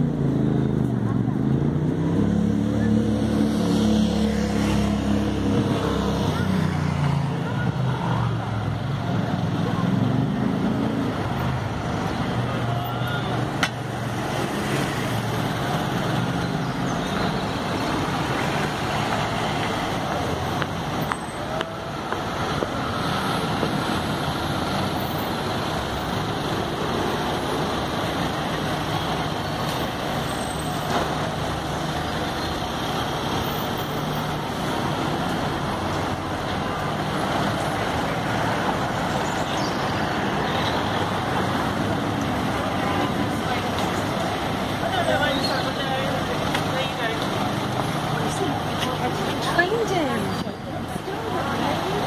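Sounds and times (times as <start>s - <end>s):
traffic passing: 0.0s - 52.0s.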